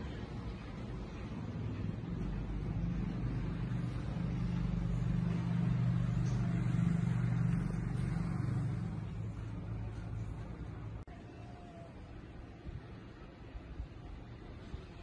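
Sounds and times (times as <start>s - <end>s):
vehicle engine passing: 0.0s - 11.0s.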